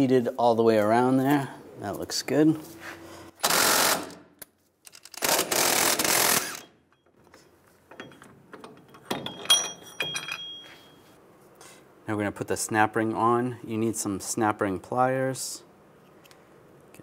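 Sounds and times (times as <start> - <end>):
ringing metal clinks: 8.0 - 11.1.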